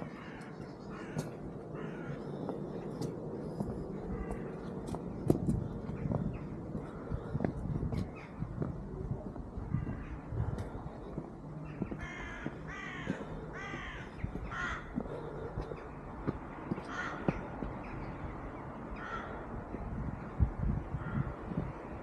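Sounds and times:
crows cawing: 0:00.0 - 0:07.3, 0:09.6 - 0:10.8, 0:11.6 - 0:18.0, 0:18.9 - 0:19.8, 0:21.0 - 0:21.4
low outdoor background: 0:00.0 - 0:22.0.

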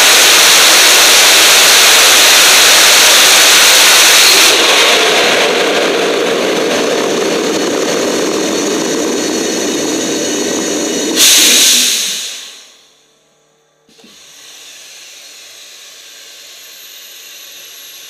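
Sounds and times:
rocket engine firing: 0:00.0 - 0:12.8
burst of hiss: 0:10.3 - 0:12.8.

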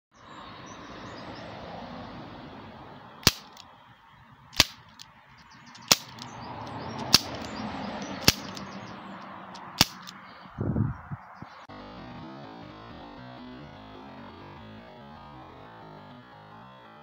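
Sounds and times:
air pistol shots cracking: 0:03.2 - 0:03.6, 0:04.6 - 0:05.0, 0:05.8 - 0:06.3, 0:07.0 - 0:07.5, 0:08.2 - 0:08.7, 0:09.6 - 0:10.2.

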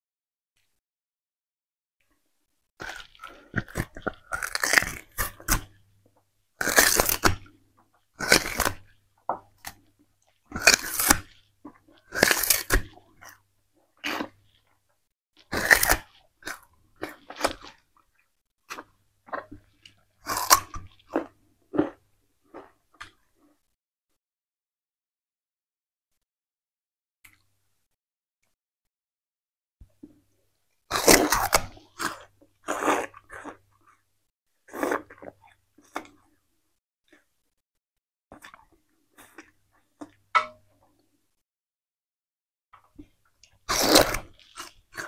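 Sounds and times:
crunching and chewing sugarcane: 0:02.8 - 0:14.8, 0:15.4 - 0:23.6, 0:30.0 - 0:36.4, 0:38.3 - 0:41.0, 0:42.8 - 0:45.0.

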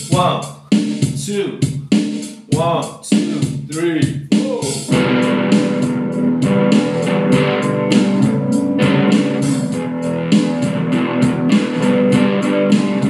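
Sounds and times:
electric guitar strumming chords: 0:04.9 - 0:13.0.

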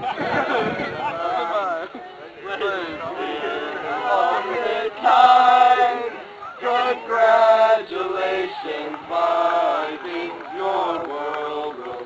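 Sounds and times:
male voices singing in unison: 0:03.1 - 0:12.0.

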